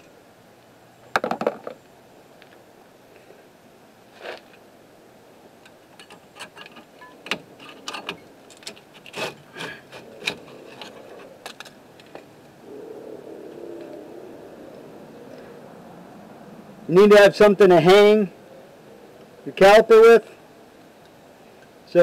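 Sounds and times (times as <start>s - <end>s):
metal clicks and scrapes: 6.0s - 12.2s.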